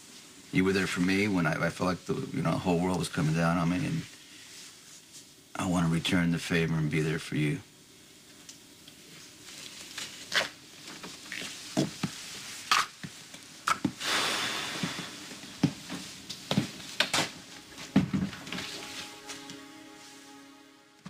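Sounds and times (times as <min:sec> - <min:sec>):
rustle: 0:09.0 - 0:13.4
objects knocking and clunking: 0:17.9 - 0:18.6.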